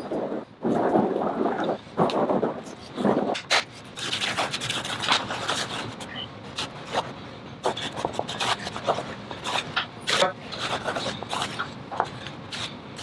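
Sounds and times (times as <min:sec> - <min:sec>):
hand brush scraping rug: 0:07.6 - 0:11.7.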